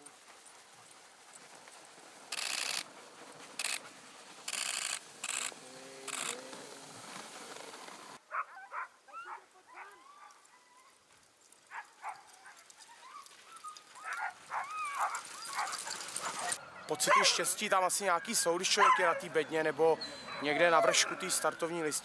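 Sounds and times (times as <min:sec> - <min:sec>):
dogs whining and yipping: 0:08.3 - 0:11.0, 0:11.7 - 0:17.5, 0:18.1 - 0:19.4, 0:20.0 - 0:21.6.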